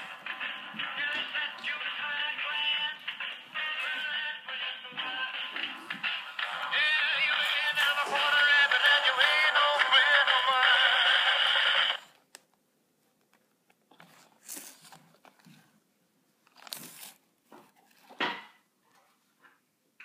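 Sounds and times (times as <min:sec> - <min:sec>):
toy dog singing: 0:06.4 - 0:11.4.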